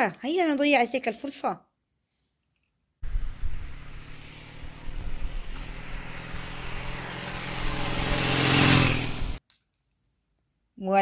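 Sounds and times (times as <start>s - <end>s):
motorcycle engine running: 3.0s - 9.4s.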